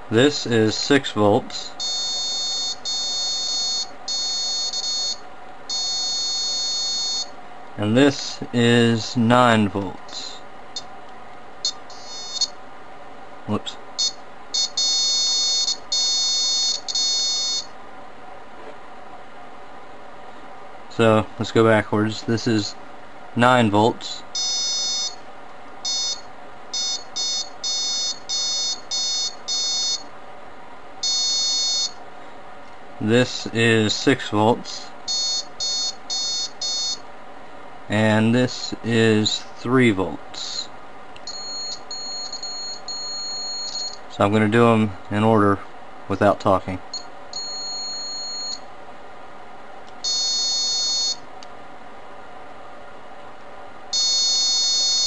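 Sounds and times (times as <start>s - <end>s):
high-pitched buzzer beep: 1.6s - 7.3s, 11.6s - 12.6s, 14.0s - 17.7s, 24.4s - 25.2s, 25.8s - 30.1s, 31.0s - 32.0s, 35.1s - 37.0s, 41.3s - 44.0s, 46.9s - 48.6s, 50.0s - 51.2s, 53.9s - 55.0s.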